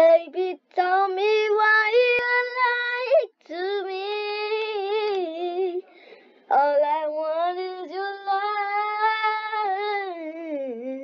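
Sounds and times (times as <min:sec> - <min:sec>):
girl singing unaccompanied: 0:00.0 - 0:05.9, 0:06.5 - 0:11.0.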